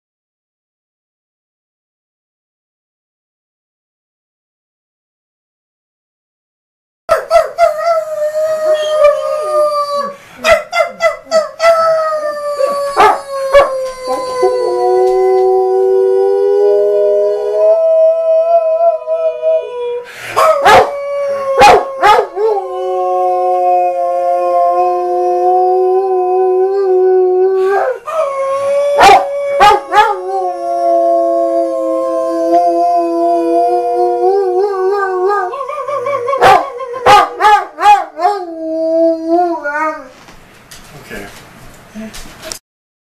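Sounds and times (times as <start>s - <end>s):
dog howling: 7.1s - 10.2s, 11.4s - 40.1s
man howling: 7.1s - 10.2s, 10.8s - 40.1s.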